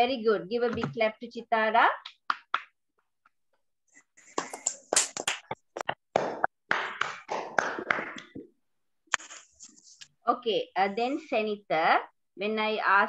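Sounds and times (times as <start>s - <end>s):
people clapping over video call: 1.9s - 2.9s, 4.2s - 9.4s.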